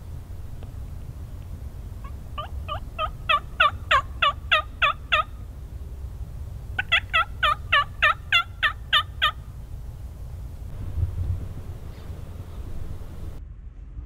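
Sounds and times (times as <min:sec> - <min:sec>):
turkey yelping: 0:02.0 - 0:05.5, 0:06.8 - 0:09.5.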